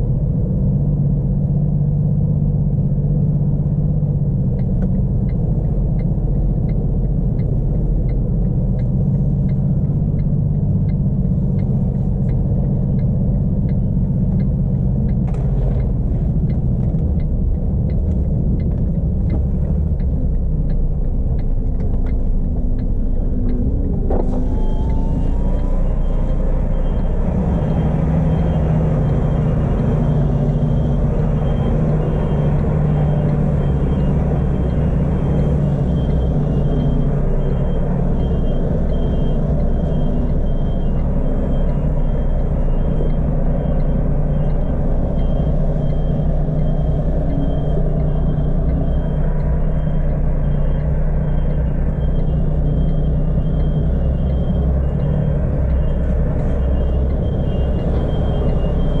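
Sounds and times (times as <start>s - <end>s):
diesel truck engine running: 0.0s - 59.0s
light regular ticking: 2.3s - 59.0s
repeating high beep: 23.0s - 59.0s.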